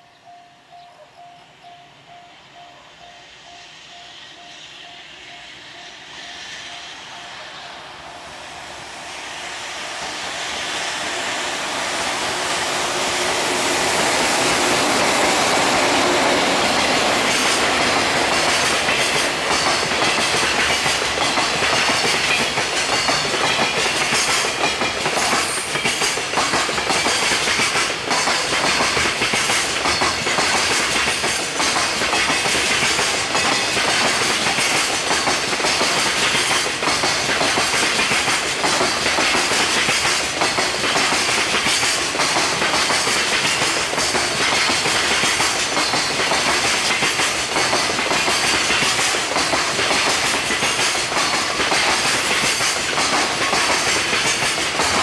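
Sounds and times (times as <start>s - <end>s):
freight train passing: 0.0s - 55.0s
wheels clattering over rail joints: 13.0s - 55.0s.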